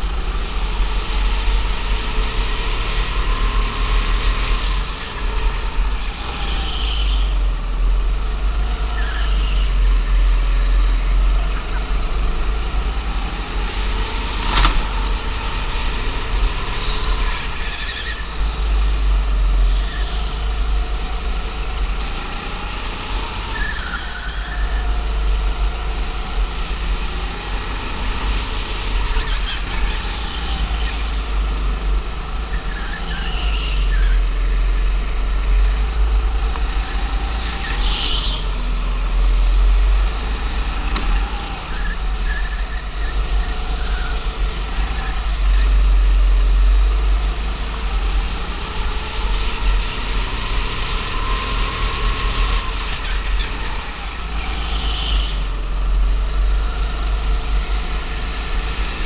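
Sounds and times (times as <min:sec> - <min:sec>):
go-kart engine revving: 0:00.0 - 0:59.0
short high squeals: 0:06.1 - 0:07.5.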